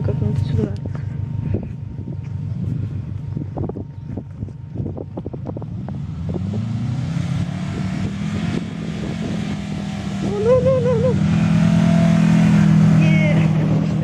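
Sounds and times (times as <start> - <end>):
car engine revving: 0.0 - 14.0
wind buffeting microphone: 0.0 - 14.0
tyres driving through sand: 1.2 - 14.0
high wavering cry: 10.1 - 11.4.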